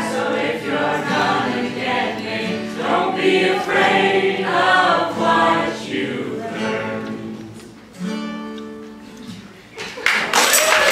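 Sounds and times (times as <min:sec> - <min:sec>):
a cappella group singing: 0:00.0 - 0:07.8.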